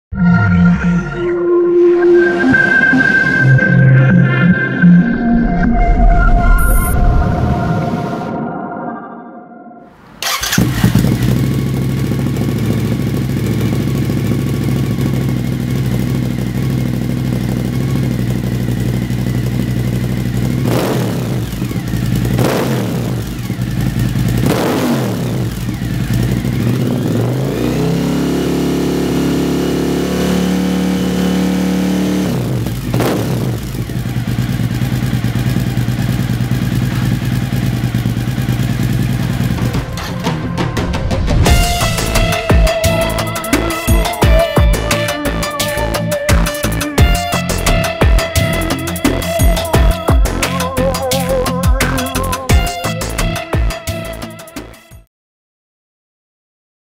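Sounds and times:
motorcycle engine revving: 0:10.0 - 0:54.3.

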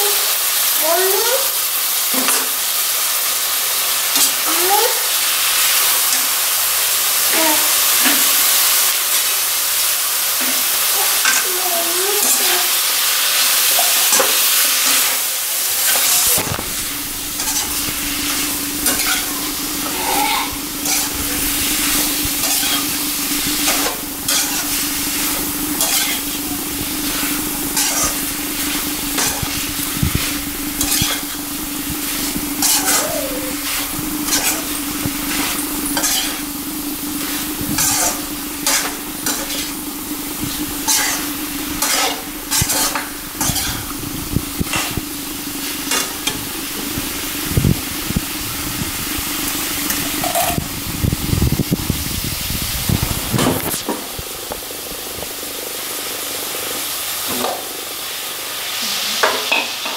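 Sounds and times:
chicken sizzling in a pan: 0:00.0 - 0:59.9
spatula scraping and knocking pan: 0:15.8 - 0:45.0.

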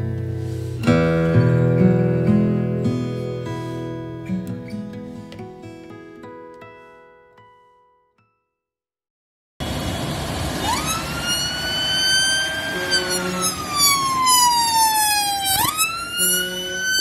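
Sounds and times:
tractor engine passing: 0:09.6 - 0:17.0
ambulance siren wailing: 0:10.0 - 0:17.0.

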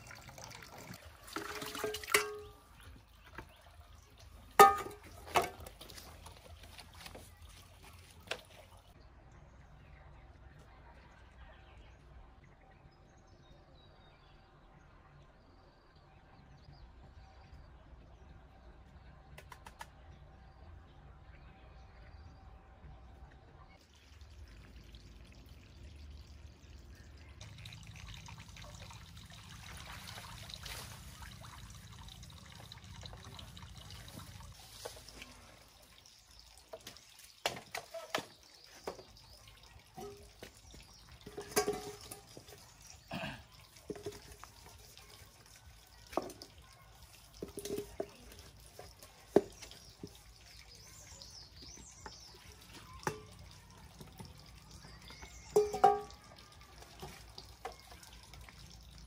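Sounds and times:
water pouring into plastic bucket: 0:00.0 - 0:02.5
outdoor water noise: 0:00.0 - 0:59.0
metal pot clanking: 0:01.3 - 0:02.9, 0:04.5 - 0:05.7, 0:39.9 - 0:43.0, 0:43.8 - 0:44.5, 0:47.4 - 0:50.0, 0:53.0 - 0:53.5, 0:55.0 - 0:57.8.

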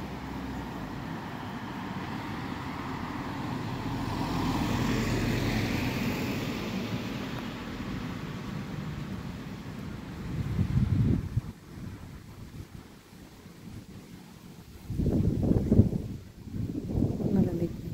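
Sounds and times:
car driving past: 0:00.0 - 0:10.8.

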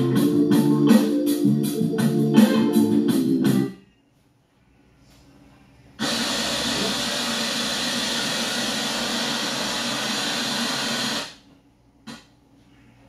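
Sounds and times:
hair dryer blowing: 0:06.0 - 0:11.4.

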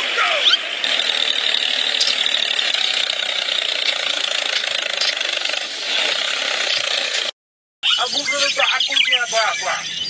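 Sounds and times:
high motor whine: 0:00.0 - 0:07.3
toy motor whirring rattle: 0:00.6 - 0:07.3.

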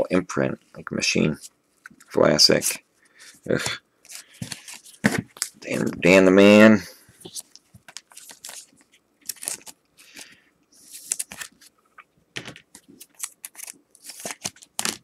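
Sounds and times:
plastic card sleeve: 0:04.0 - 0:06.1, 0:07.2 - 0:15.0.

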